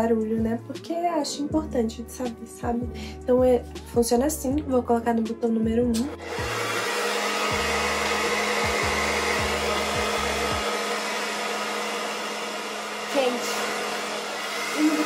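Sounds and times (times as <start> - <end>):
hair dryer blowing air: 5.1 - 15.0.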